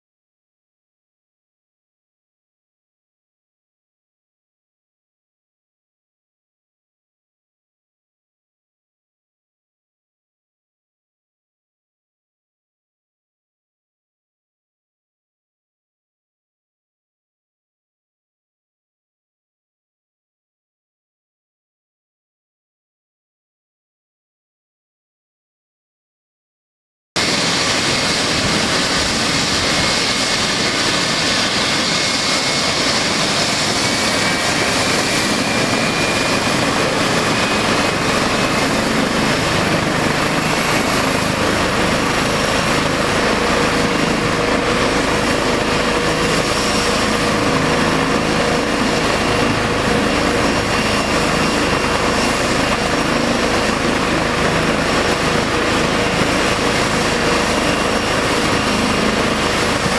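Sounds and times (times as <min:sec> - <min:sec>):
helicopter turbine and rotor noise: 0:27.2 - 0:59.9.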